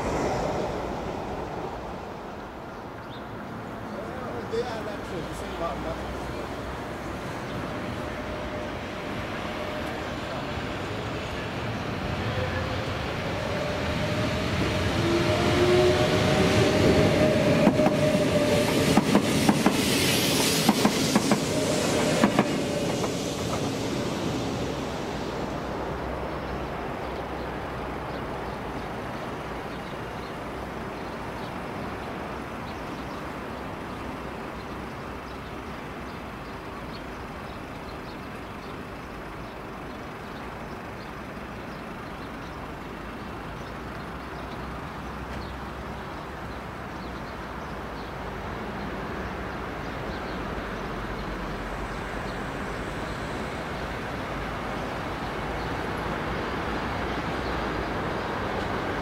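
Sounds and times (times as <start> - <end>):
train whine: 0.0 - 35.0
train wheels clacking over rail joints: 17.5 - 23.8.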